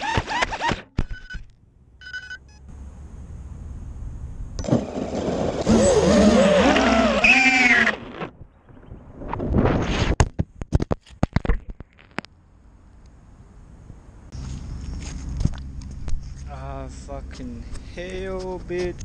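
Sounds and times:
drone motors whining: 0:04.6 - 0:08.8.

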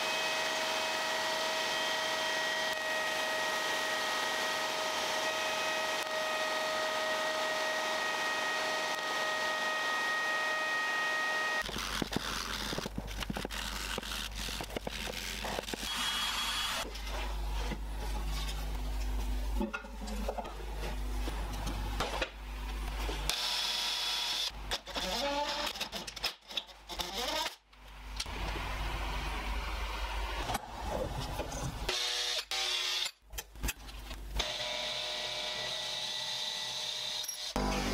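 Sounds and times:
rotary tool whine: 0:00.0 - 0:17.2.

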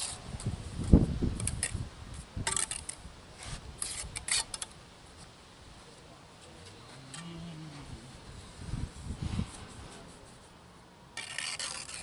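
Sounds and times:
trowel scraping mortar: 0:02.4 - 0:04.7, 0:11.2 - 0:12.0.

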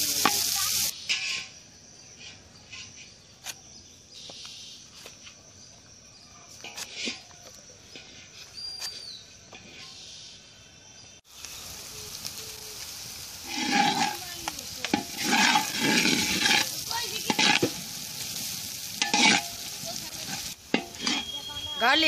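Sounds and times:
onions sizzling in hot oil: 0:00.0 - 0:03.0, 0:11.0 - 0:22.0
wooden spatula scraping wok: 0:06.5 - 0:10.0, 0:13.4 - 0:22.0.

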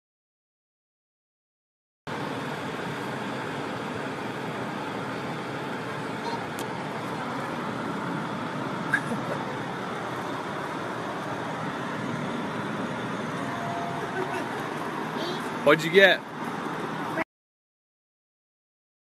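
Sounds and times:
shop interior background noise: 0:06.0 - 0:17.2.

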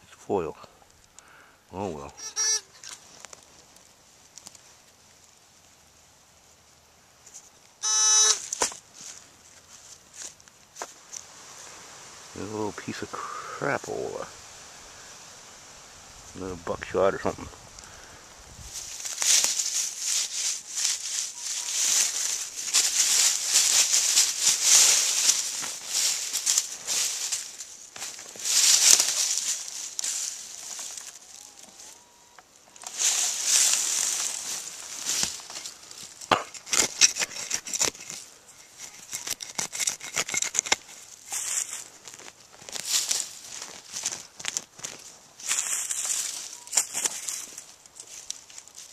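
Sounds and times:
dry leaves rustling and crackling: 0:08.4 - 0:48.9
hand digger scraping into soil: 0:32.8 - 0:41.8.

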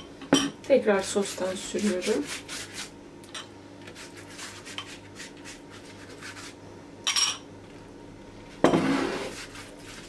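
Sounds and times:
pastry brush rubbing on pastry: 0:01.1 - 0:02.9, 0:03.9 - 0:06.6, 0:08.8 - 0:10.0.

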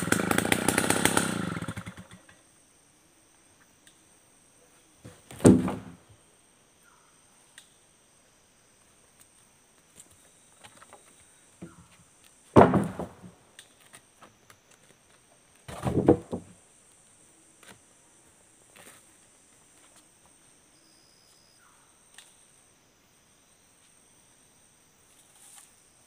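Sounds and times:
wooden planks knocking together: 0:05.3 - 0:06.0, 0:12.5 - 0:14.0, 0:15.7 - 0:16.6.

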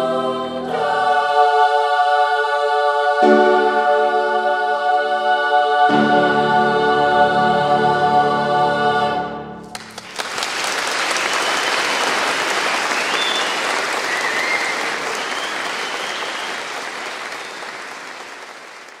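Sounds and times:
choir chord: 0:00.0 - 0:10.0
audience applauding: 0:09.7 - 0:19.0.

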